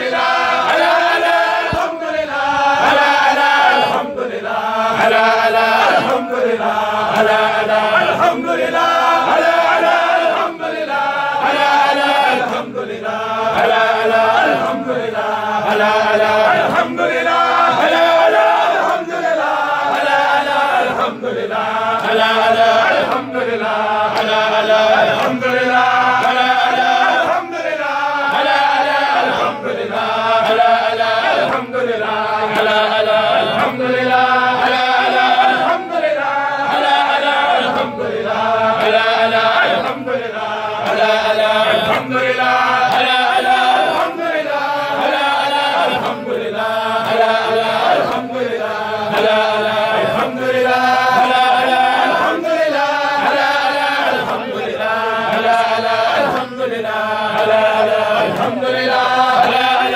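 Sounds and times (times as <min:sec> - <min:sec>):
men chanting together: 0:00.0 - 0:59.9.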